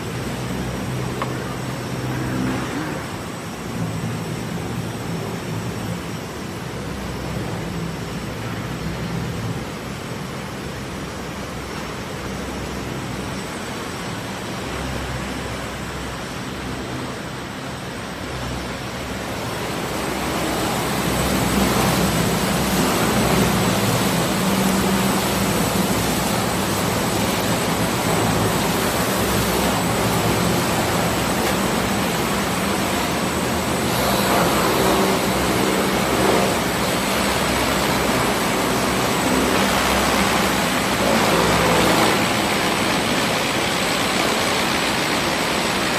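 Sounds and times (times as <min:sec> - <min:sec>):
low motor hum: 0:00.0 - 0:13.3, 0:14.4 - 0:45.9
sanding machine rushing: 0:19.4 - 0:45.9.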